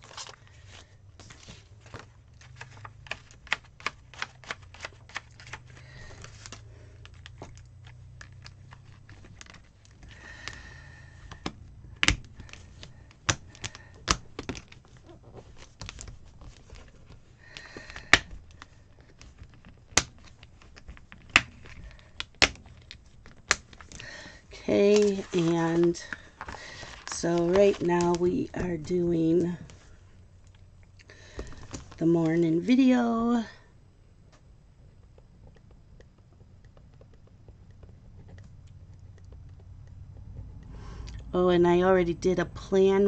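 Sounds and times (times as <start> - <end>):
pages rustling: 0.0 - 30.0, 31.3 - 32.7
paper and plastic sheets snapping: 1.2 - 10.6, 11.3 - 24.2, 24.8 - 28.2.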